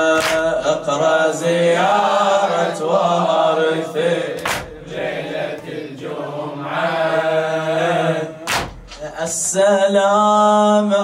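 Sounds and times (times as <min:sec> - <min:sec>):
man chanting a lament: 0:00.0 - 0:11.0
heavy thump: 0:08.5 - 0:09.0.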